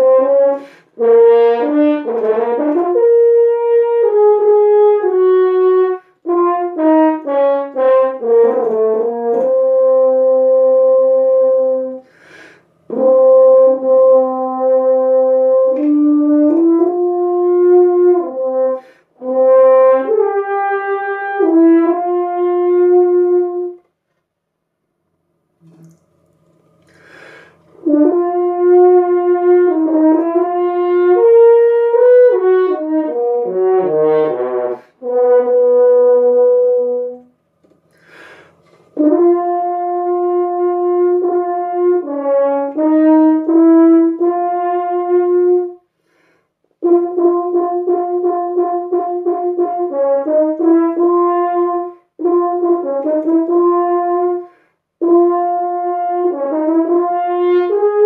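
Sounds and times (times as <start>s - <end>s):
french horn playing: 0.0s - 24.0s, 25.6s - 58.0s
quick breath: 0.6s - 1.0s, 12.0s - 12.8s, 26.9s - 27.8s, 37.9s - 39.0s, 45.9s - 46.6s, 54.4s - 54.9s.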